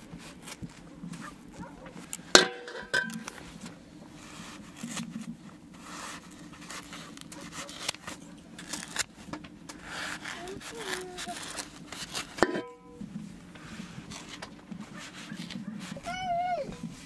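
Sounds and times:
objects clicking and scraping: 0:00.3 - 0:12.8.

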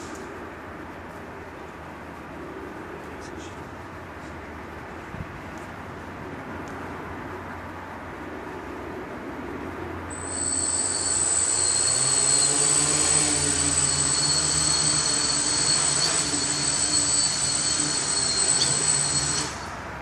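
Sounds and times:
propeller hum: 0:08.3 - 0:20.0
drone motors whining: 0:10.1 - 0:19.8.

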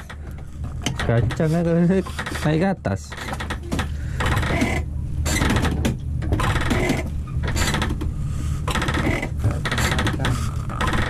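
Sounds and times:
rapid rattling clicks: 0:08.7 - 0:11.0.

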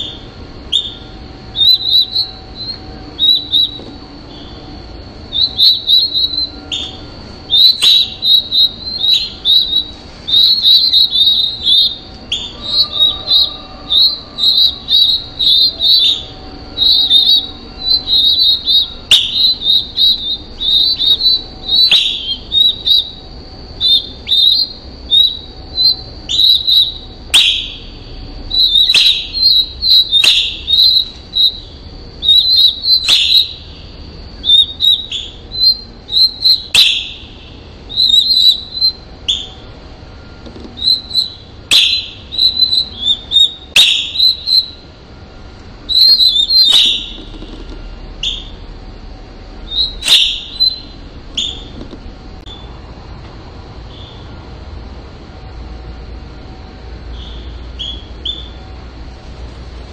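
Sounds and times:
nestlings cheeping: 0:00.0 - 0:53.0, 0:53.7 - 0:59.9.

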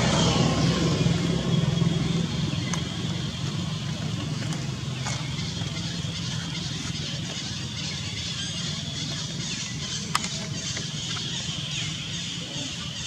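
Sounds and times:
low rumble: 0:00.0 - 0:07.7.

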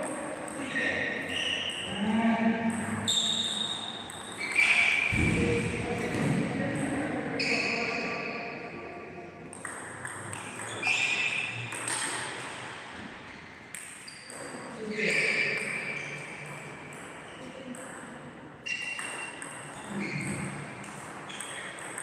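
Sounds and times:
heavy thud: 0:05.1 - 0:06.6.

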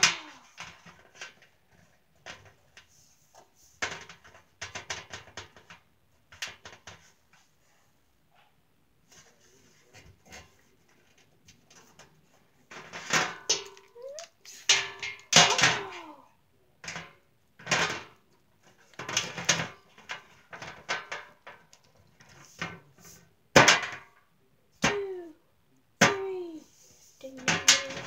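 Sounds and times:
plastic figures clattering bangs: 0:00.0 - 0:02.8, 0:03.8 - 0:07.1, 0:10.3 - 0:16.2, 0:16.8 - 0:24.2, 0:27.3 - 0:28.0.

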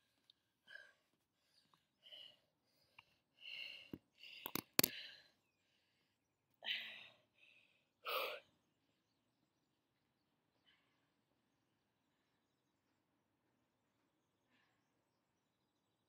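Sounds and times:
woman breathing and sighing: 0:00.0 - 0:08.6.

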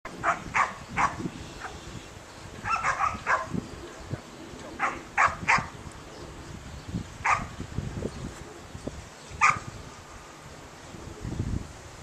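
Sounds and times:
dog barking: 0:02.7 - 0:03.5, 0:04.8 - 0:05.7, 0:07.3 - 0:07.5, 0:09.4 - 0:09.6.

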